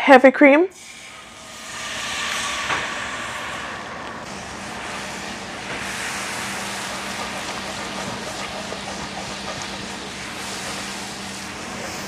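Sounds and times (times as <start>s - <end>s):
whisk stirring in a skillet: 5.4s - 11.7s.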